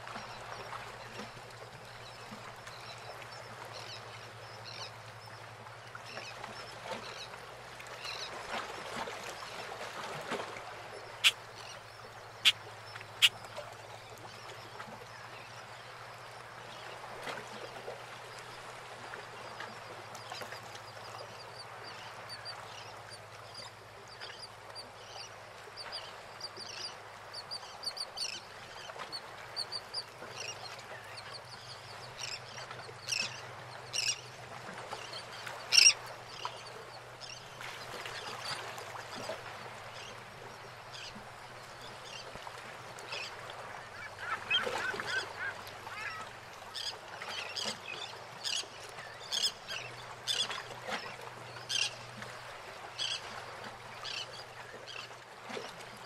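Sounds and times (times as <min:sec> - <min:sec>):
water lapping around boats: 0:00.0 - 0:56.0
birds calling: 0:11.1 - 0:13.5, 0:43.2 - 0:47.7.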